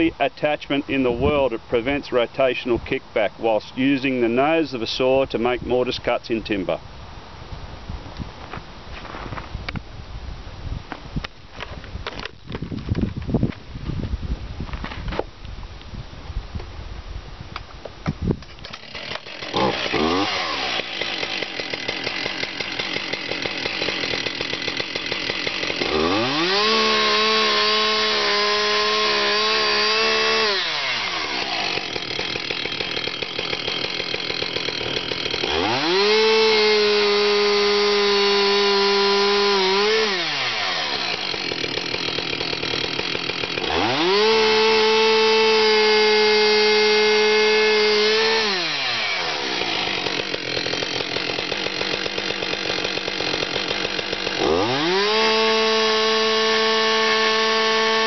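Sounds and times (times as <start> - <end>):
chainsaw idling and revving: 18.5 - 58.0.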